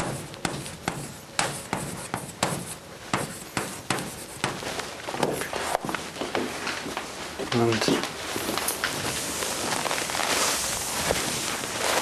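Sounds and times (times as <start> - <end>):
chalk tapping and scratching on chalkboard: 0.0 - 5.9.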